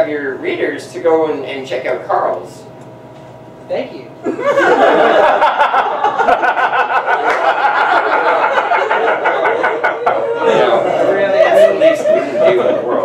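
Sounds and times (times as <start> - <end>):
audience laughing: 4.2 - 13.0
scattered clapping: 7.2 - 7.9.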